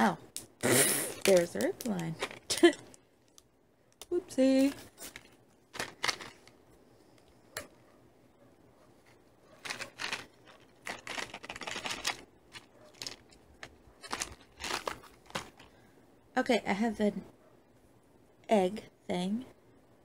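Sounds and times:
candy wrapper crinkling and tearing: 0:01.1 - 0:03.5, 0:04.5 - 0:06.6, 0:09.6 - 0:15.8.

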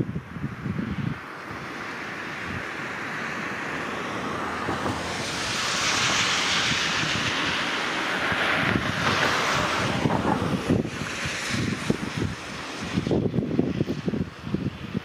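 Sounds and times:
wind buffeting microphone: 0:00.0 - 0:15.0
river water flowing: 0:01.2 - 0:13.0.

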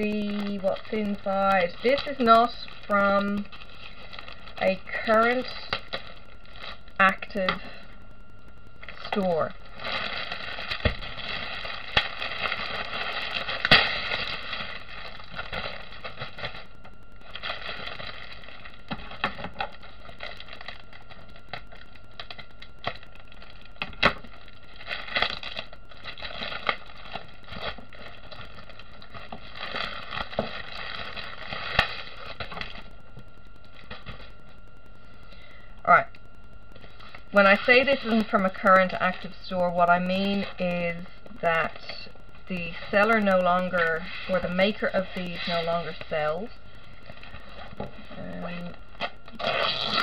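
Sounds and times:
plastic packaging crinkling: 0:00.0 - 0:07.8, 0:08.5 - 0:34.8, 0:36.3 - 0:50.0.

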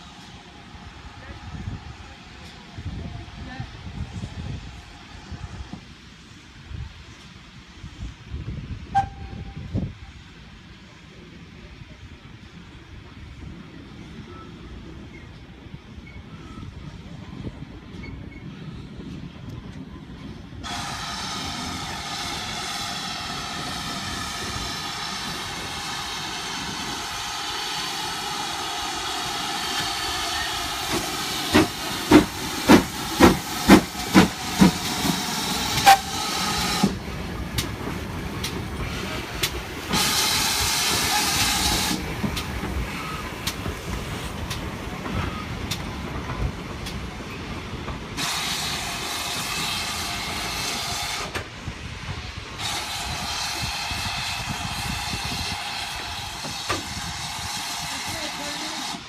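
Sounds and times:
steam engine exhaust beats: 0:20.6 - 0:59.0
steam hissing: 0:20.6 - 0:59.0.

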